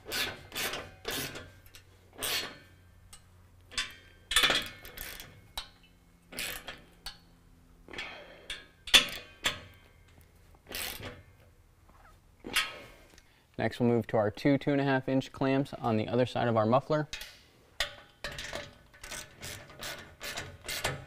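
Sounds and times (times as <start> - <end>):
ratchet wrench clicking: 0.1 - 5.7, 6.3 - 7.3, 10.7 - 11.2, 17.8 - 21.0.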